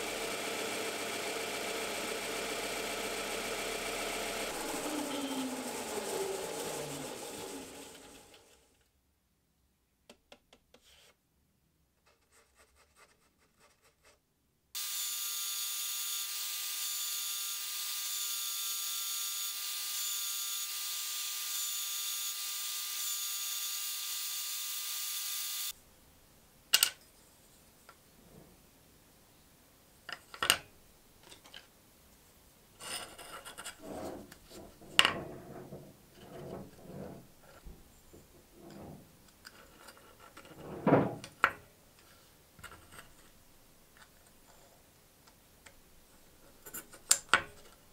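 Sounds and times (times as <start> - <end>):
drill press motor hum: 0.0 - 8.6.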